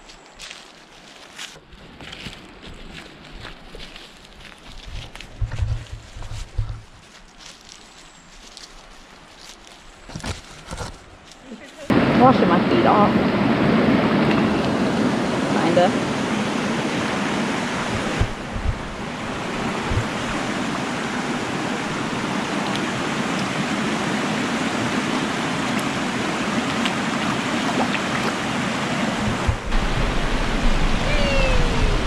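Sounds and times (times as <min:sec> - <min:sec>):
waterfall cascading over rocks: 0:14.4 - 0:32.0
soft low knocks: 0:17.9 - 0:19.1.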